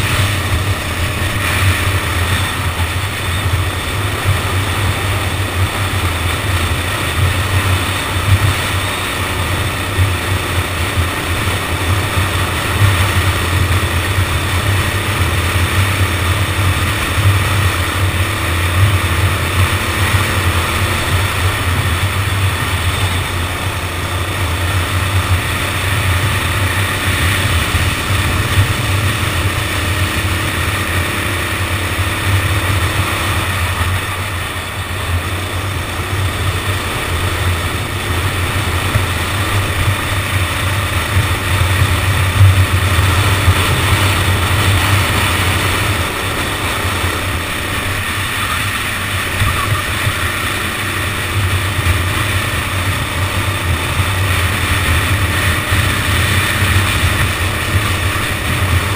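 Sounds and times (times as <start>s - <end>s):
go-kart engine droning: 0.0s - 58.9s.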